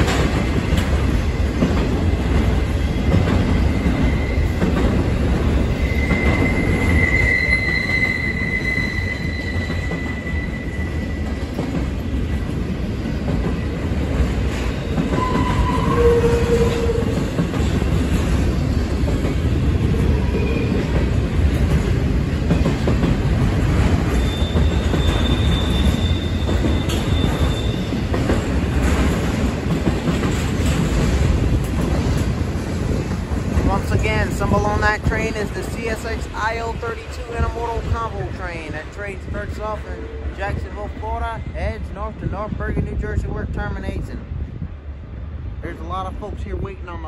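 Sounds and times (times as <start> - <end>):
train wheels rumbling on rail: 0.0 - 47.0
high-pitched wheel squeals: 5.7 - 11.3, 15.2 - 17.1, 24.2 - 27.9.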